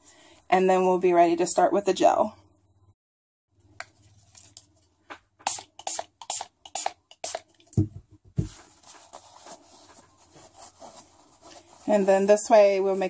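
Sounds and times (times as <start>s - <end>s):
spray bottle spritzing: 5.4s - 7.5s
paper towel rustling: 8.4s - 13.0s.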